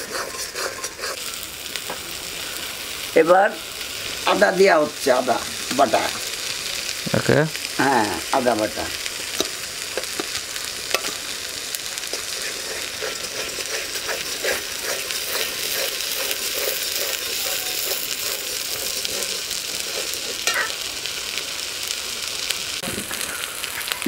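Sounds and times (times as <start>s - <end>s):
metal spoon scraping pan: 0.0s - 1.4s, 12.0s - 20.8s
paste sizzling in hot oil: 0.0s - 24.0s
spoon knocking pan: 9.4s - 11.2s, 13.0s - 20.8s.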